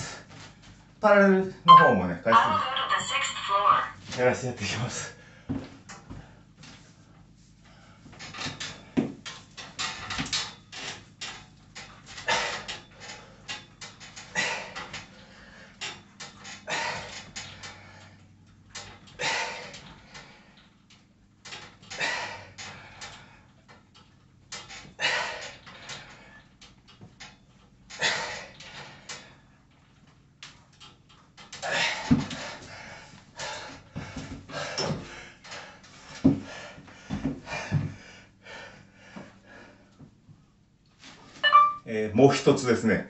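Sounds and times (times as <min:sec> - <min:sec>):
knocks and clunks from pull-up tower: 0:08.1 - 0:15.2, 0:15.8 - 0:20.3, 0:21.4 - 0:32.8, 0:33.4 - 0:38.0.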